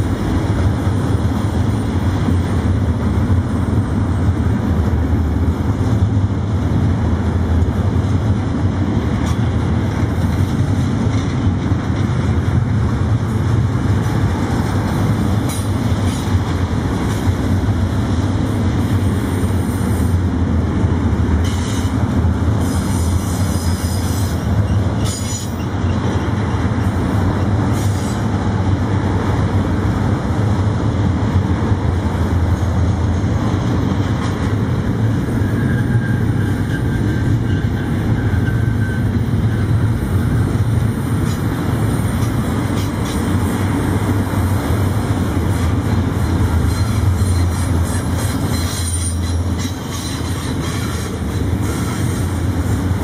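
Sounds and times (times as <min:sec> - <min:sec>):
train wheels rumbling on rail: 0:00.0 - 0:53.0
high-pitched wheel squeals: 0:35.2 - 0:39.8, 0:46.6 - 0:52.3.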